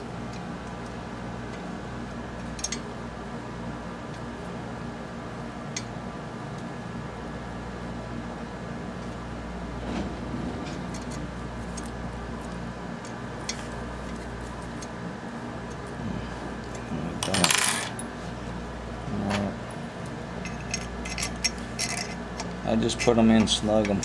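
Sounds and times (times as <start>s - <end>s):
steady background hum: 0.0s - 24.0s
small metal parts clinking: 17.2s - 18.0s.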